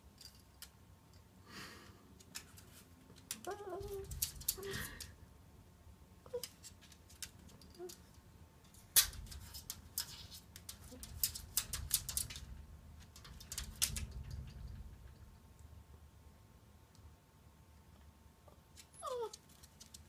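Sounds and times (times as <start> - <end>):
dog claws tapping on wooden floor: 8.7 - 14.9.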